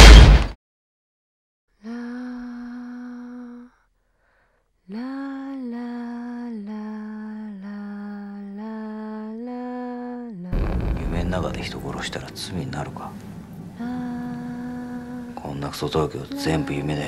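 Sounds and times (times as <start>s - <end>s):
slow melody of long held notes: 13.2s - 17.0s.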